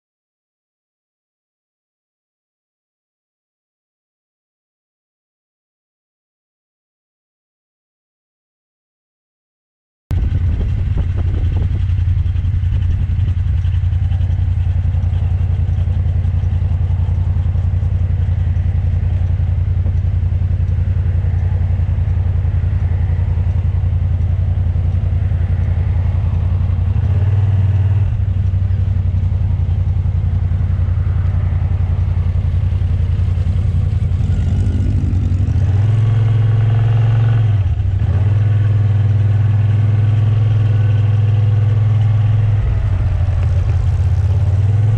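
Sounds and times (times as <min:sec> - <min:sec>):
scooter engine running: 0:10.1 - 0:36.4, 0:37.7 - 0:44.9
wind and road noise: 0:10.1 - 0:44.9.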